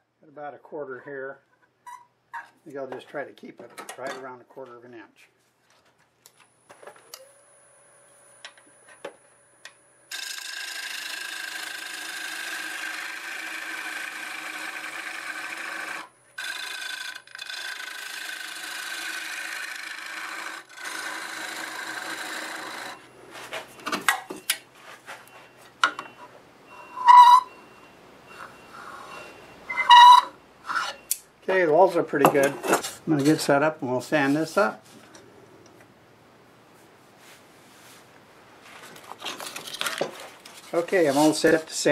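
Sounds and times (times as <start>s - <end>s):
wood lathe motor whining: 9.6s - 23.1s, 26.7s - 27.6s, 28.4s - 31.2s
gouge scraping spinning wood: 10.1s - 23.7s, 26.9s - 27.5s, 40.7s - 41.9s.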